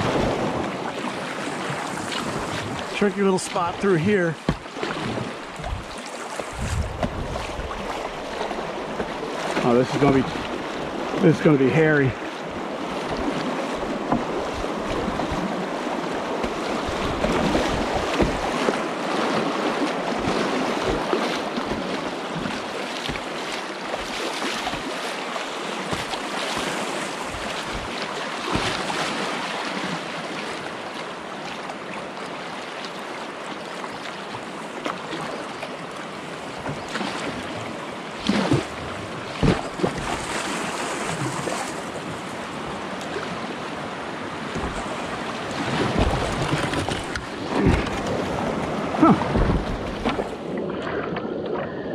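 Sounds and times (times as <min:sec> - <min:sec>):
creek water rushing and splashing: 0:00.0 - 0:51.9
paddle strokes in water: 0:00.0 - 0:51.9
wind buffeting microphone: 0:05.0 - 0:09.2.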